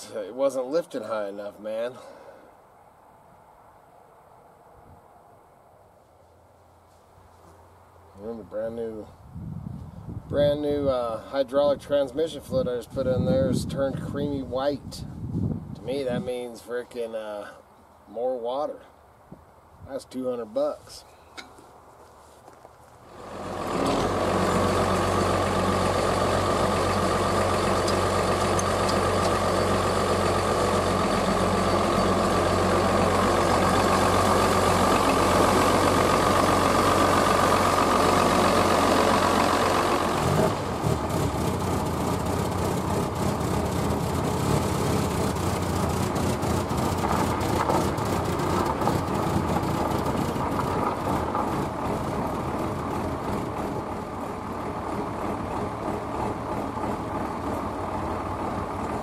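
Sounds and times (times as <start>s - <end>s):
tractor engine running: 23.0s - 59.0s.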